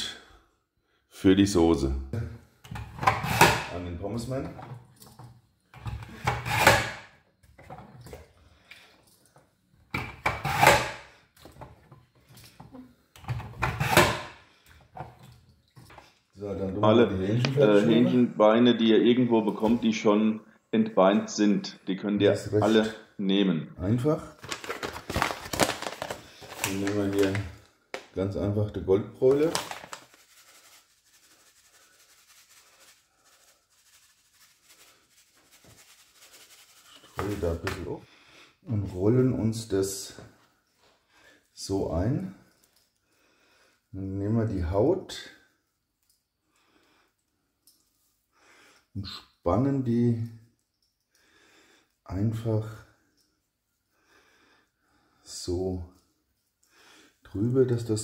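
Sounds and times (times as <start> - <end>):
seasoning rustling from paper pouch: 24.4 - 27.6, 29.2 - 37.7.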